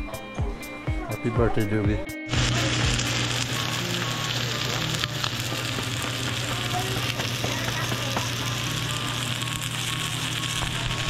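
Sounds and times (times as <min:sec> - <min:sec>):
steak sizzling in a frying pan: 0:02.3 - 0:11.0.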